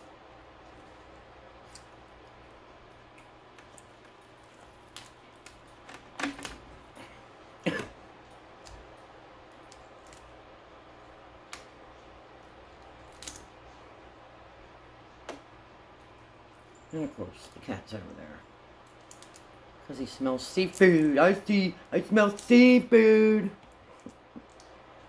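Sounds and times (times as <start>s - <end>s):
crab shell cracking: 3.0s - 6.6s, 9.5s - 10.4s, 12.8s - 13.5s, 18.8s - 19.6s.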